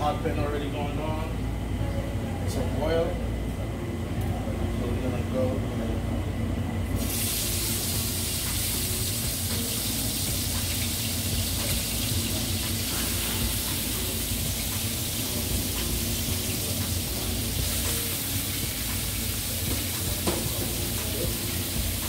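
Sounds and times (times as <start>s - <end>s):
meat sizzling in a frying pan: 7.0s - 22.0s.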